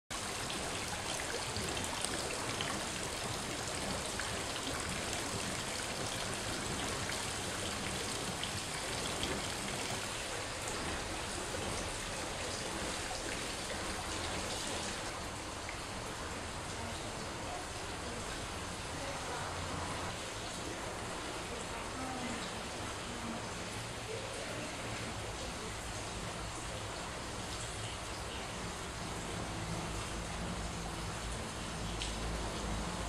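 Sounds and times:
water bubbling and fizzing: 0.1s - 33.0s.

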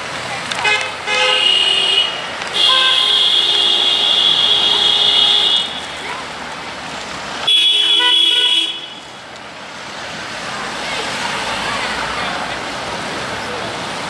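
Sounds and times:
passing engines and tyres: 0.0s - 14.0s
vehicle horns honking: 0.6s - 6.1s, 7.4s - 9.1s.

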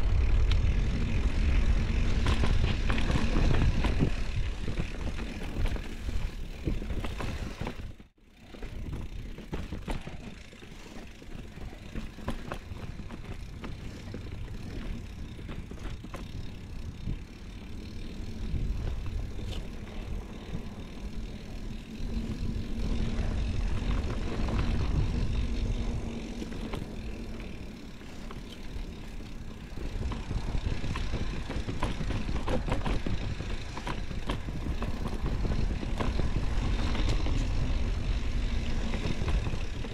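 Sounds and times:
bike clicks and rattles: 0.0s - 39.9s
tyres rolling on dirt: 0.0s - 39.9s
wind buffeting microphone: 15.3s - 39.9s.

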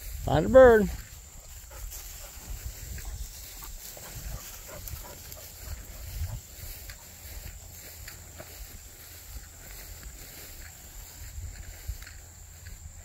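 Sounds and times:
footsteps swishing through grass: 0.0s - 13.0s
dog panting and sniffing: 1.2s - 8.6s.

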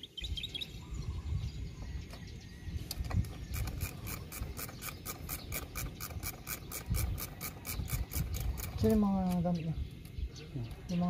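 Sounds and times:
ratchet tool rasping clicks: 2.9s - 9.5s.

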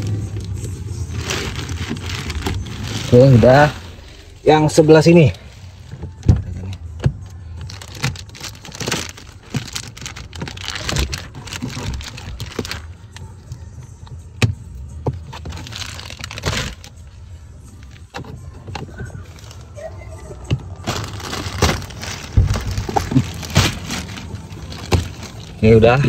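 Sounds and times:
plastic film rustling and crinkling: 0.0s - 6.8s, 7.6s - 13.6s, 15.2s - 17.1s, 17.8s - 26.0s.

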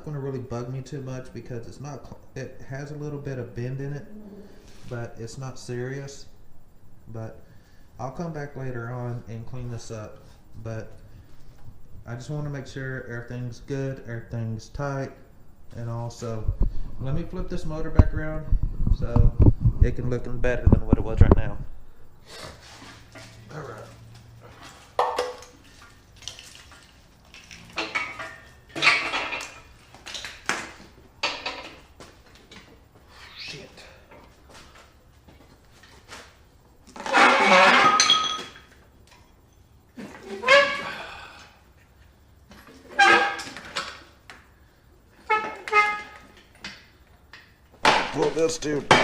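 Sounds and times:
metal clanks and clinks: 27.3s - 29.7s, 37.1s - 38.7s
metal on metal squealing: 33.1s - 34.1s, 37.0s - 38.2s, 40.1s - 41.4s, 42.8s - 43.7s, 45.2s - 46.4s.

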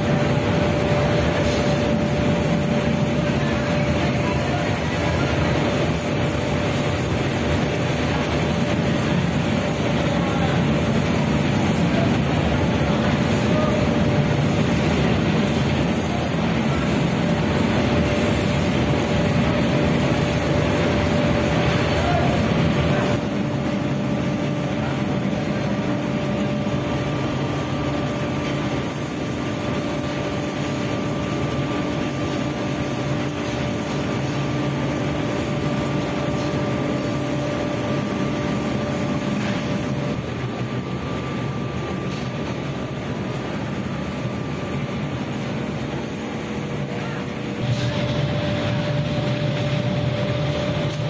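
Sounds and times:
constant hum: 0.0s - 51.0s
mechanical drone: 0.0s - 51.0s.

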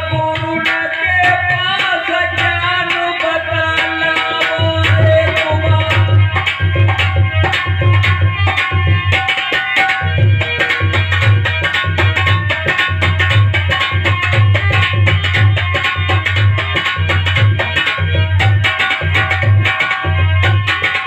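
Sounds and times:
hand drum beating fast rhythm: 4.0s - 21.0s.

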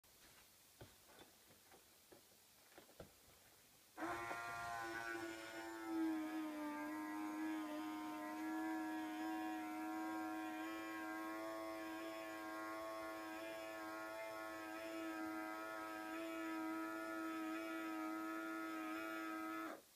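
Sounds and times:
small electric motor whining: 4.0s - 19.8s.

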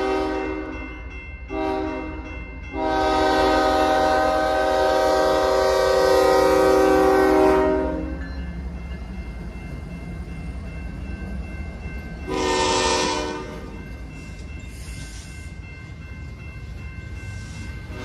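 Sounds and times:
train horn: 0.0s - 0.9s, 1.5s - 8.2s, 12.3s - 13.7s
crossing signals ringing: 0.0s - 18.0s
freight train rumbling past: 0.0s - 18.0s.

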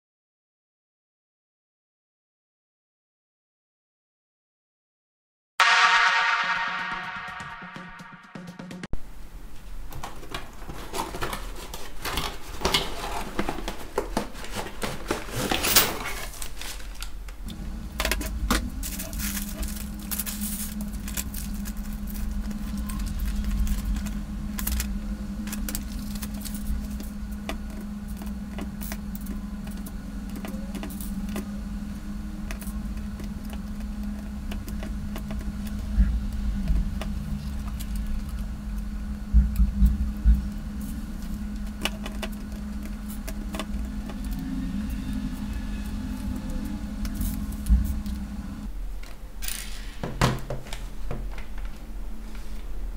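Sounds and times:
cardboard and paper rustling: 10.0s - 17.2s
steady low hum: 17.0s - 49.4s.

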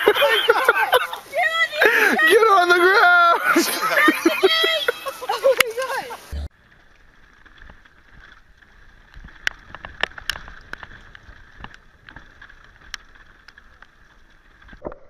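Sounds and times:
bike tyres on dirt trail: 0.0s - 15.0s
bike knocking and rattling: 5.2s - 14.9s.

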